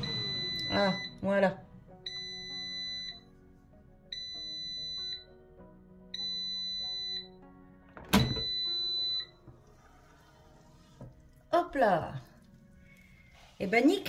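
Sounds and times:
air fryer alarm beeps: 0.0s - 1.3s, 2.0s - 3.3s, 4.1s - 5.4s, 6.1s - 7.4s, 8.1s - 9.4s
soft background music: 0.0s - 14.0s.

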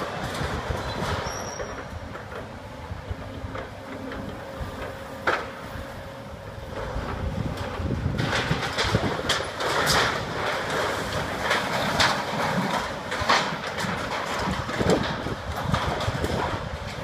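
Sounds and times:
excavator engine rumble: 0.0s - 17.0s
metal clanks and knocks: 6.7s - 17.0s.

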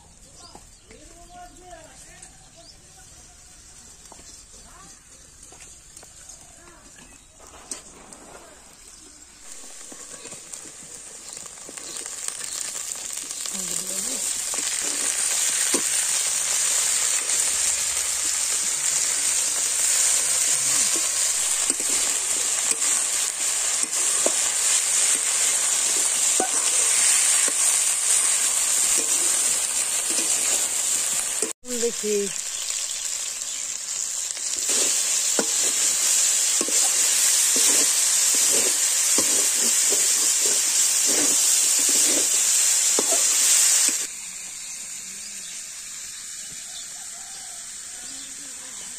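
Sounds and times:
vegetables sizzling in a wok: 0.0s - 48.9s
metal spatula scraping a wok: 9.4s - 13.5s, 14.5s - 17.4s, 18.6s - 31.5s, 34.4s - 44.1s.

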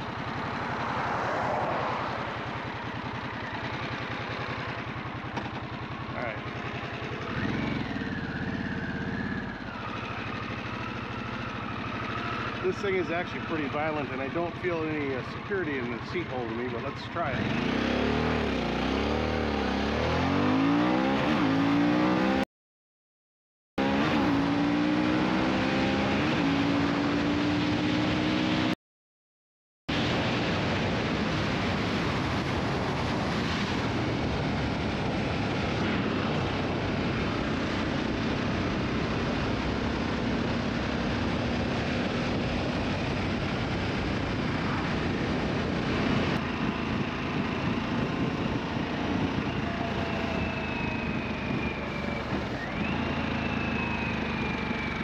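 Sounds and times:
motorcycle engine accelerating: 0.0s - 22.5s, 23.8s - 28.8s, 29.9s - 55.0s
wind rush: 29.9s - 52.9s.

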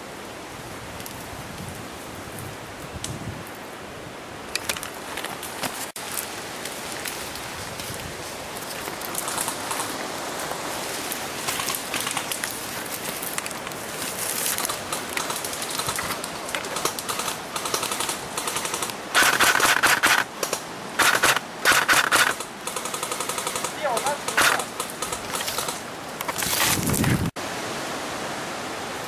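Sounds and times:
rustling through brush: 4.4s - 27.4s
airsoft rifle bursts: 16.7s - 25.8s.

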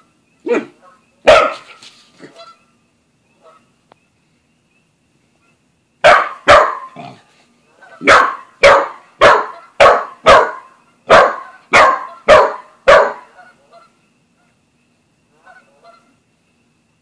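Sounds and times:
dog barking: 0.5s - 2.4s, 6.0s - 7.1s, 8.0s - 13.3s.

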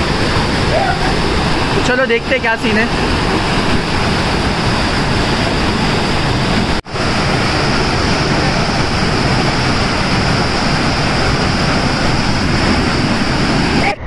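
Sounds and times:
waterfall rushing over rocks: 0.0s - 14.0s.

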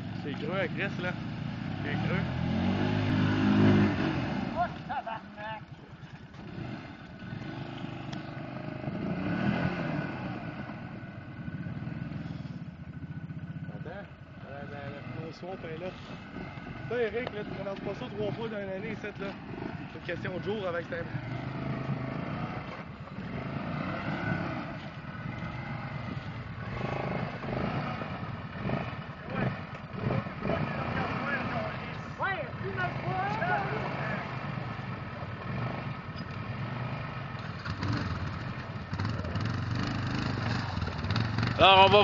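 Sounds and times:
quad engine revving: 0.0s - 42.0s.

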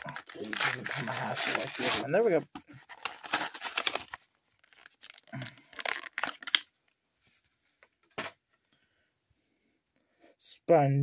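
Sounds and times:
plastic packaging crinkling: 0.0s - 2.2s, 2.8s - 6.7s.

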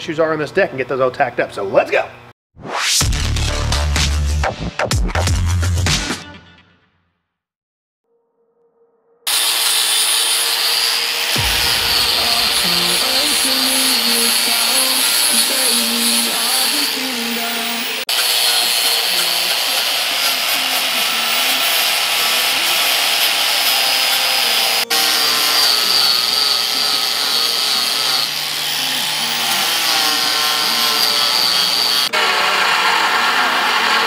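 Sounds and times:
die grinder grinding steel: 9.3s - 34.0s.

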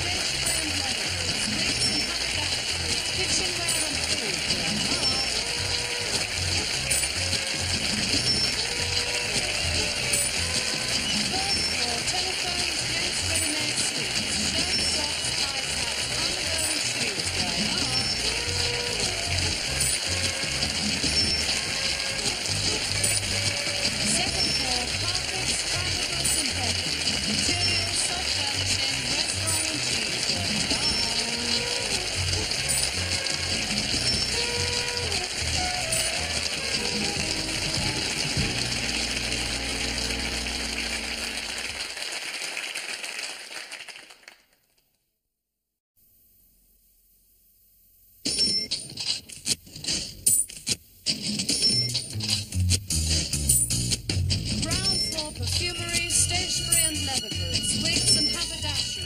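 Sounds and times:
instrumental theme music: 0.0s - 42.0s.

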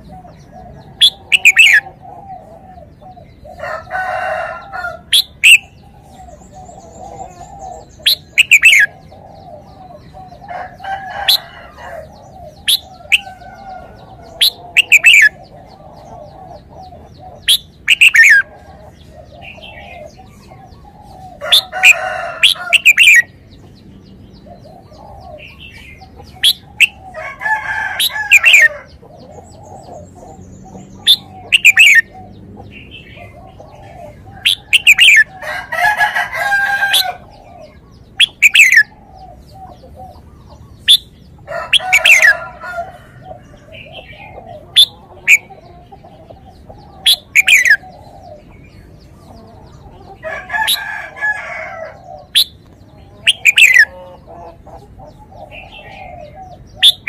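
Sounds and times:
chickens calling: 0.0s - 57.0s.

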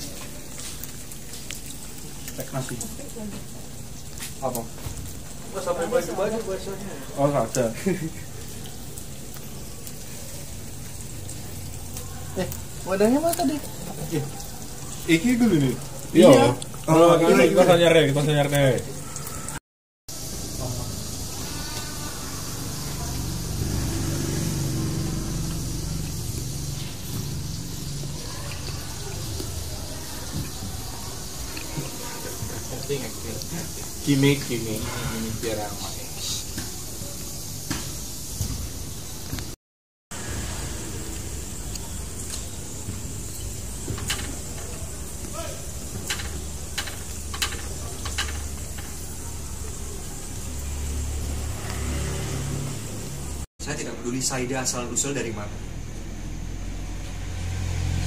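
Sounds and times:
meat sizzling in a pan: 0.0s - 53.4s
vehicle engine humming: 20.2s - 32.2s, 40.1s - 53.5s
chopsticks clicking on pan: 46.1s - 49.1s.

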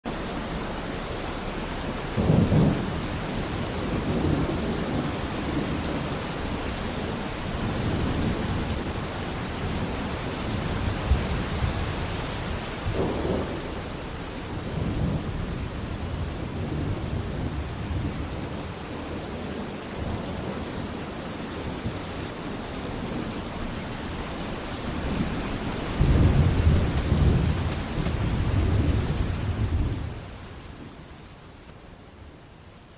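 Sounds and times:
steady rain falling: 0.0s - 32.9s
thunder rolling: 12.9s - 18.6s, 25.0s - 30.2s.

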